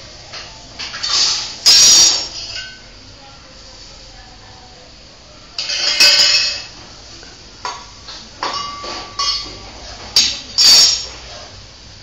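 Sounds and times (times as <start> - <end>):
metal pots and utensils clattering: 0.4 - 2.8, 5.6 - 6.8, 7.7 - 11.5.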